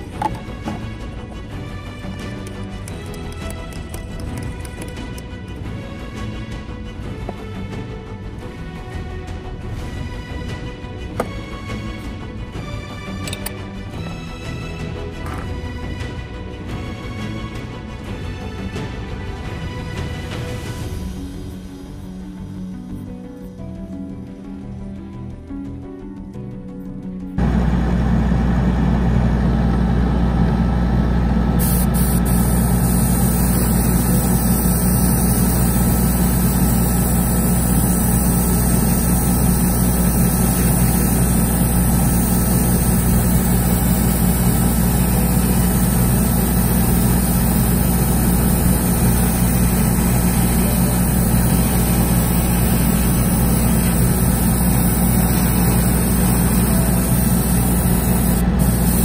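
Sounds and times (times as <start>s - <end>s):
exhaust fans and compressor humming: 0.0s - 5.2s, 27.4s - 59.0s
airbrush hissing: 31.6s - 59.0s.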